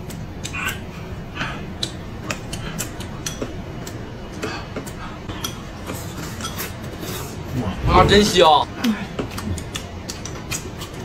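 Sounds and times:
chopsticks clicking against bowls: 0.0s - 0.8s, 1.8s - 6.7s, 9.2s - 11.0s
steady low hum: 0.0s - 11.0s.

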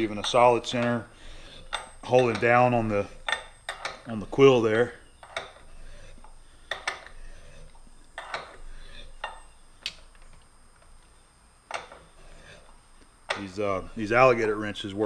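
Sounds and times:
metal wrench clinking: 0.0s - 1.0s, 1.6s - 4.1s.

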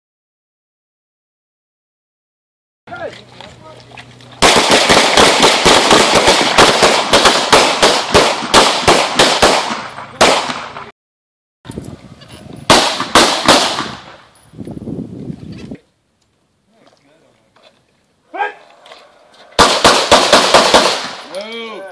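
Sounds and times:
pistol shots echoing: 4.4s - 10.9s, 12.7s - 14.2s, 19.6s - 21.4s.

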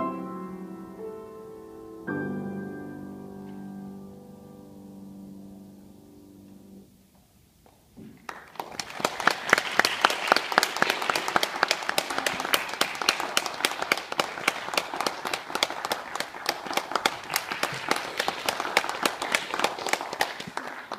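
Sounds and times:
small audience applauding: 8.2s - 20.9s.

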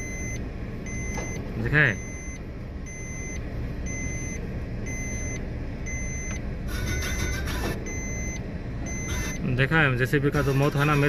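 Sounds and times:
warning alarm beeping: 0.0s - 9.7s
excavator diesel engine rumbling: 0.0s - 11.0s.

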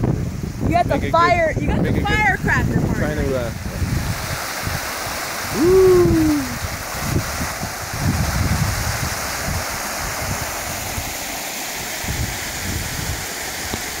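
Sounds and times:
water rushing over rocks: 0.0s - 14.0s.

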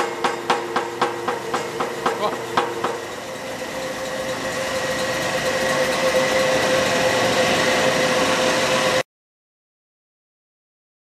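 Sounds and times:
machine drone with whine: 0.0s - 9.0s.

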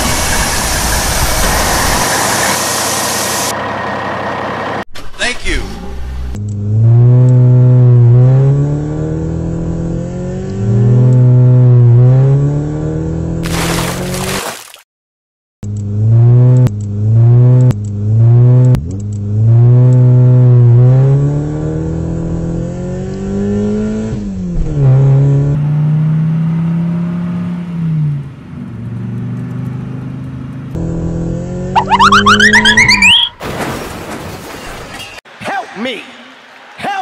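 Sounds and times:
rapid pulsing rising pitch: 31.8s - 33.4s.

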